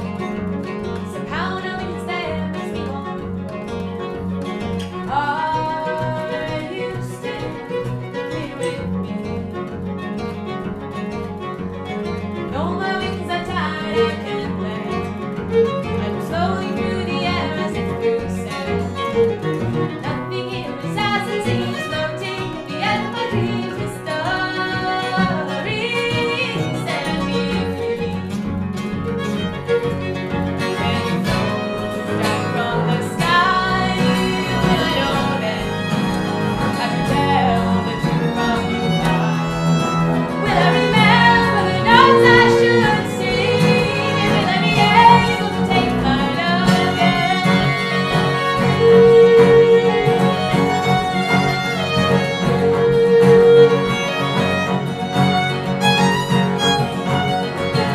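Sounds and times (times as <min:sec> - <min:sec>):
fiddle: 0:00.0 - 0:57.9
strummed acoustic guitar: 0:00.0 - 0:57.9
upright bass: 0:00.0 - 0:57.9
woman singing: 0:01.0 - 0:03.4, 0:05.0 - 0:09.0, 0:12.5 - 0:19.2, 0:19.9 - 0:28.5, 0:30.6 - 0:39.2, 0:40.4 - 0:54.7, 0:57.1 - 0:57.9.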